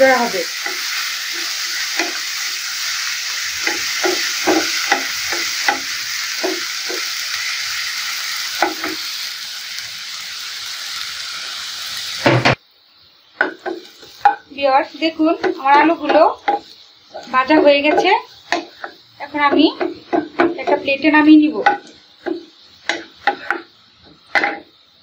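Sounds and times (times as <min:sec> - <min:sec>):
potato strips sizzling in oil: 0:00.0 - 0:25.0
wooden spatula scraping pan: 0:15.0 - 0:23.7.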